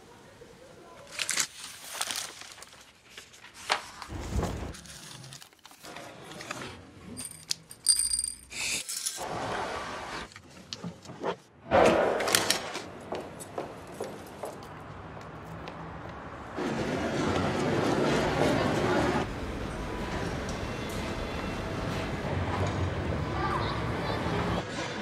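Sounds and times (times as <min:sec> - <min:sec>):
calendar page tearing: 0:01.0 - 0:06.8.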